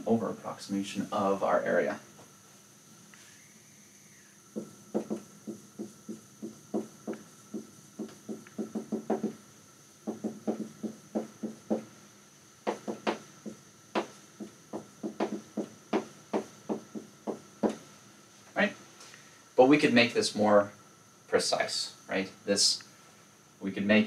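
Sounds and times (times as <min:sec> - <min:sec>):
marker tapping on whiteboard: 0:04.6 - 0:09.4, 0:10.0 - 0:11.9, 0:12.6 - 0:17.8.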